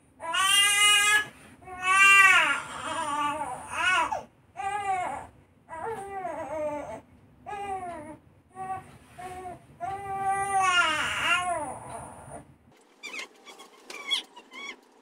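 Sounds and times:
baby crying: 0.2s - 8.8s, 9.9s - 11.9s.

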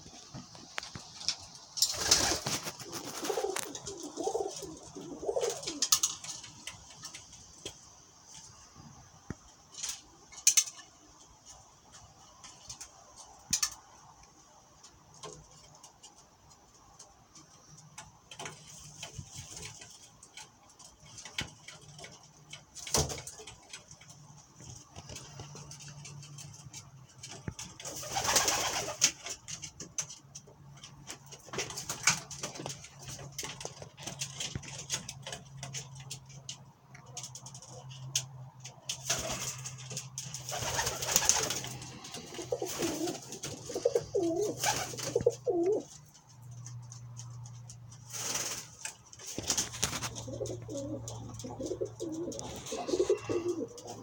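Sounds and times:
clicks and rustling: 0.2s - 8.6s, 14.8s - 54.0s
pigeons cooing: 1.9s - 6.8s, 39.0s - 46.1s, 49.3s - 54.0s.

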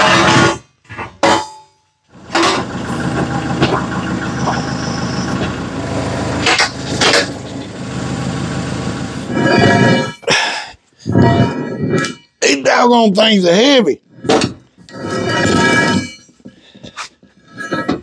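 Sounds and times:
tractor diesel engine running: 2.1s - 10.2s.

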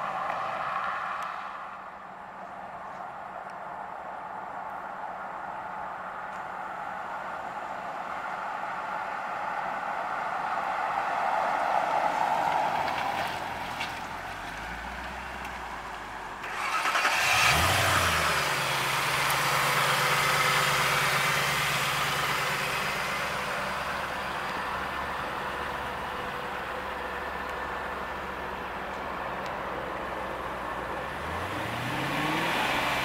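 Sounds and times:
car passing: 0.0s - 33.0s
car engine starting and idling: 12.7s - 33.0s.

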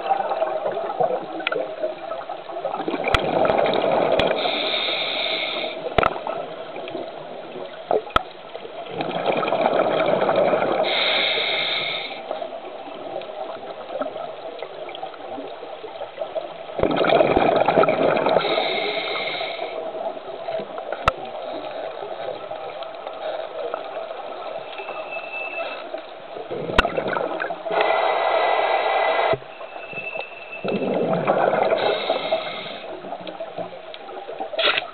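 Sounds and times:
underwater bubbles gurgling: 0.0s - 34.9s
steady regulator hiss: 4.3s - 6.0s, 10.8s - 12.6s, 18.4s - 22.5s, 27.6s - 30.0s, 31.7s - 33.1s.

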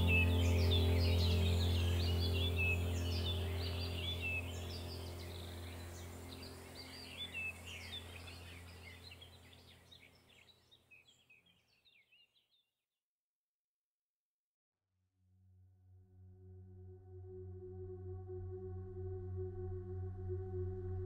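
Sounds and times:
low steady hum: 0.0s - 10.4s
birds chirping and trilling: 0.0s - 12.6s.

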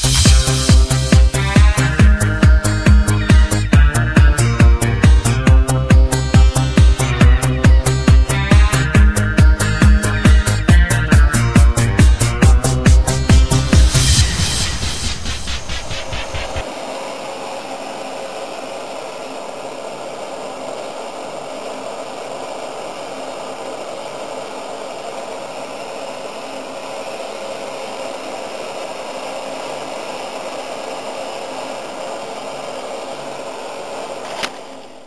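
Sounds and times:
gas blowtorch hissing: 0.0s - 35.0s.

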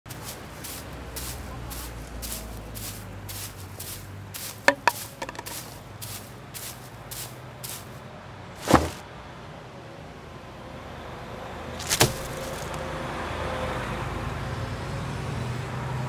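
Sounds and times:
footsteps on stone paving: 0.1s - 8.0s, 8.6s - 9.0s, 11.8s - 12.8s
loud thump: 8.6s - 9.0s.

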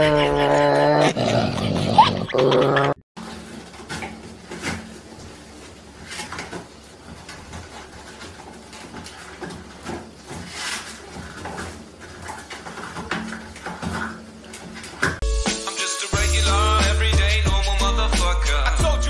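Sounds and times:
toilet paper rustling and tearing: 3.2s - 15.2s.

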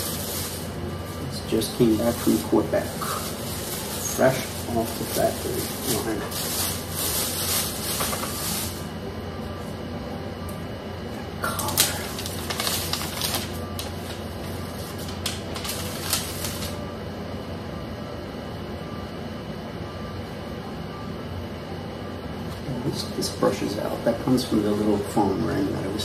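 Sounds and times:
packaging rustling and crinkling: 0.0s - 8.9s, 11.5s - 16.8s
low room hum: 0.0s - 26.0s.

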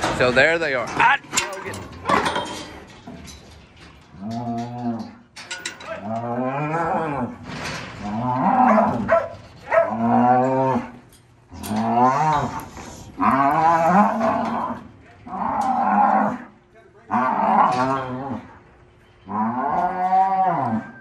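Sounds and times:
cattle mooing: 4.1s - 5.2s, 5.9s - 7.4s, 8.0s - 18.6s, 19.2s - 21.0s.

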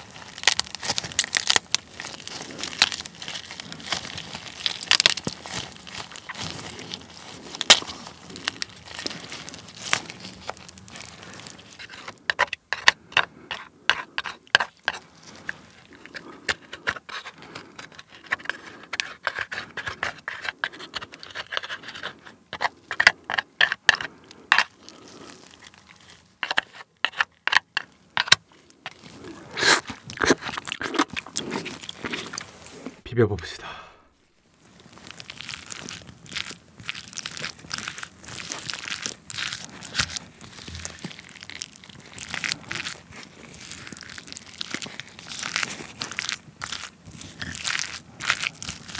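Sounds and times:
crab squelching and crackling: 0.0s - 33.1s, 34.4s - 48.9s
shell being scraped: 0.6s - 32.9s.

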